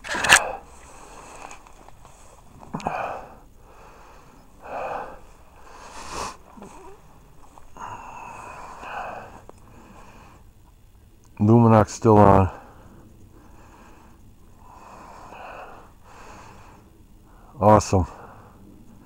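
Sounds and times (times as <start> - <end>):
man breathing hard: 2.8 - 7.0, 7.7 - 10.6, 12.6 - 18.7.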